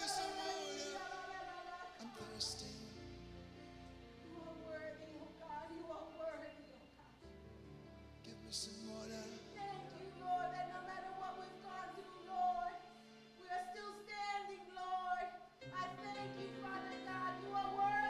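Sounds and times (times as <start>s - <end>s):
woman singing worship song: 0.0s - 3.0s, 4.2s - 7.2s, 8.9s - 18.0s
held backing chords: 0.0s - 13.9s.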